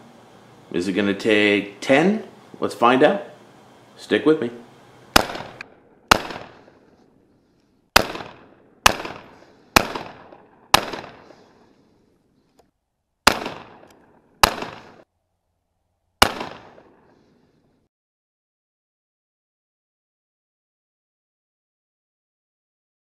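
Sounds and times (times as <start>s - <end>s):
shotgun shots with echo: 5.1s - 6.8s, 8.0s - 11.6s, 13.2s - 15.0s, 16.2s - 17.2s.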